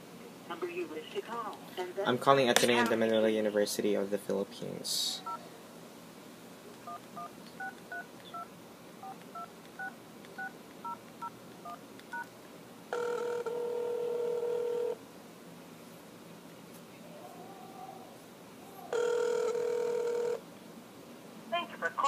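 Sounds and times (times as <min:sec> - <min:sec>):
steady ringing tone: 0:12.9 - 0:15.0, 0:18.9 - 0:20.4.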